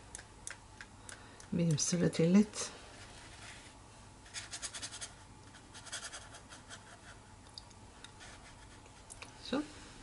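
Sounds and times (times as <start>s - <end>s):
brush scratching on paper: 2.9s - 7.2s, 8.2s - 8.8s.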